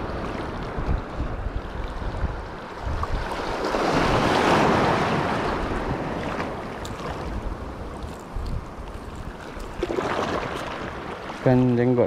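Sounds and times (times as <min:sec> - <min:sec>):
sea wave surging and washing away: 0:00.0 - 0:12.0
wind buffeting microphone: 0:00.0 - 0:12.0.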